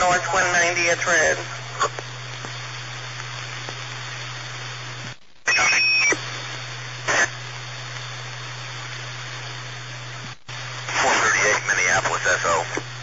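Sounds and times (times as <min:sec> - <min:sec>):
radio hiss and hum: 0:00.0 - 0:13.0
static bursts: 0:00.0 - 0:13.0
high steady tone squealing: 0:05.4 - 0:06.4.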